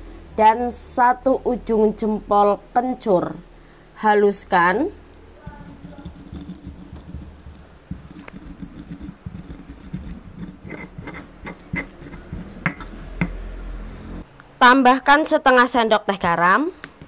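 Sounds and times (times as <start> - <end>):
stone pestle grinding in mortar: 5.5 - 13.4.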